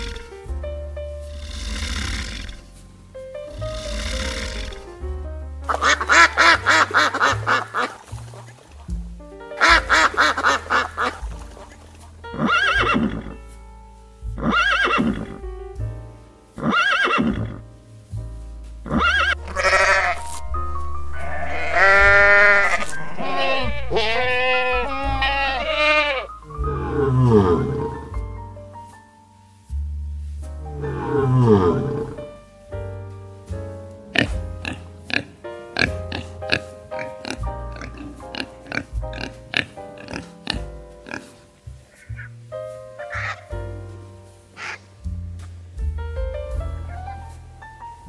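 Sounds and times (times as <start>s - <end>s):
background music: 0.0s - 48.0s
animal calls: 21.1s - 27.9s, 44.6s - 44.9s.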